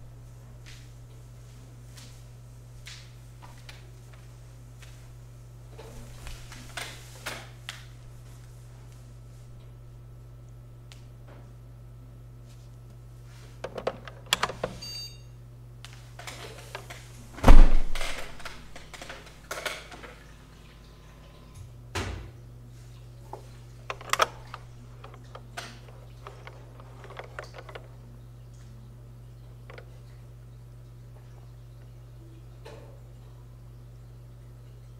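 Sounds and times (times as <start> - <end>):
computer fans humming: 0.0 - 34.9
small clicks and knocks: 13.6 - 14.8, 23.3 - 28.0, 29.7 - 30.1
loud thunk: 17.4 - 18.1.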